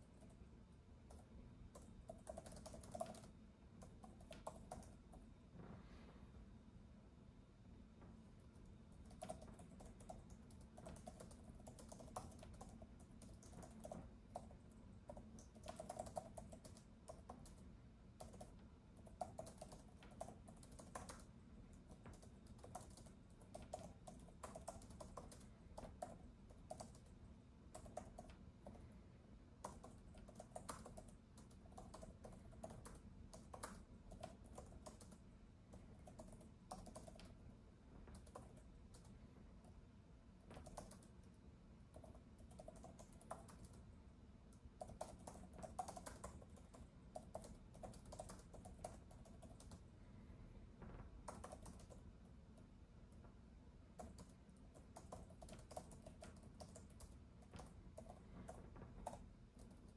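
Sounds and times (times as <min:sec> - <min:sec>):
typing on a keyboard: 0:00.0 - 0:05.3, 0:08.5 - 0:29.0, 0:29.6 - 0:49.9, 0:51.1 - 0:59.9
low steady background hum: 0:00.0 - 0:59.9.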